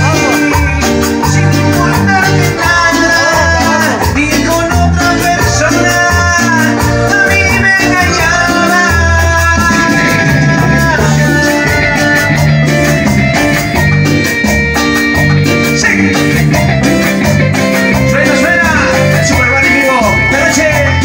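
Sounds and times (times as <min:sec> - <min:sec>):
bass guitar: 0:00.0 - 0:21.0
keyboard chords: 0:00.0 - 0:21.0
live latin dance band: 0:00.0 - 0:21.0
timbales and drum kit: 0:08.2 - 0:19.8.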